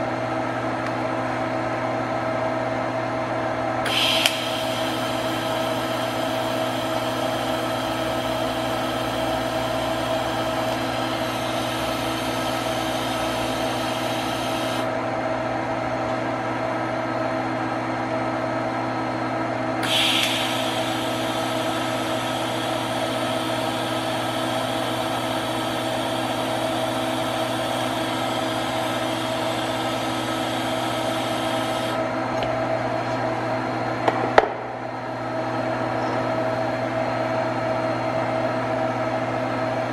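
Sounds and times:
welding arc hissing: 3.9 - 14.9, 19.8 - 32.0.

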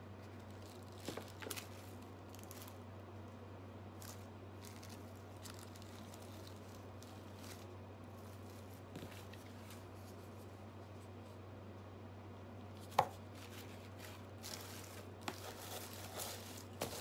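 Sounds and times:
steady low hum: 0.0 - 17.0
packaging rustling: 4.0 - 9.8, 13.3 - 17.0.

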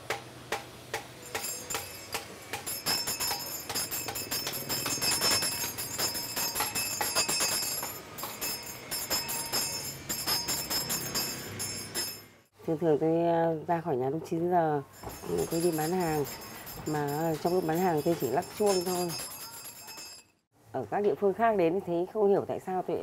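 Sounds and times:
hand bell jingling: 1.2 - 12.4, 14.9 - 20.4.

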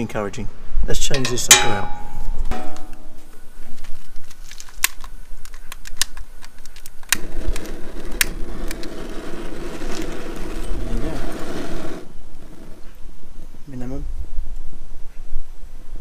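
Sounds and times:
gas burner rushing: 7.2 - 12.9.

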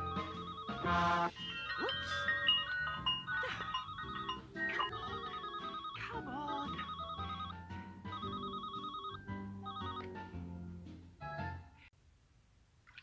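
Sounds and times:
cartoon telephone ringing: 0.0 - 10.2
light background music: 0.0 - 11.9.

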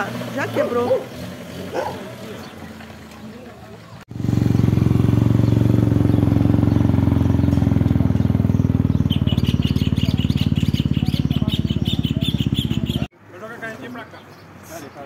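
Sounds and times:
motorcycle engine idling: 0.0 - 13.1
bird chirping: 4.5 - 13.1.

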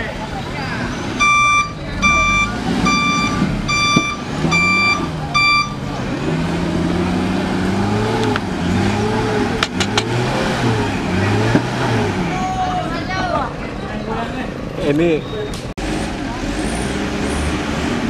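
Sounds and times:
engine revving: 0.7 - 12.6, 15.8 - 18.0
truck reversing alarm beeping: 0.8 - 6.0.

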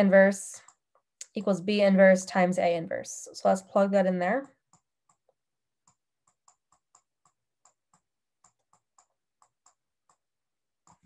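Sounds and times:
stylus tapping on tablet screen: 0.0 - 1.6, 4.0 - 11.0.

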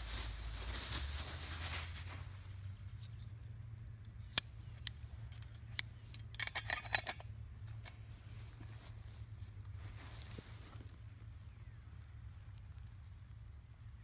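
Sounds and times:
metal stove parts clinking: 4.1 - 8.0.

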